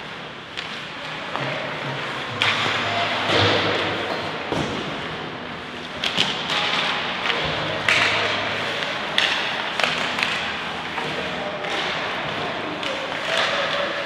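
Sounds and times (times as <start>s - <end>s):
hockey sticks and puck knocking: 6.0s - 14.0s.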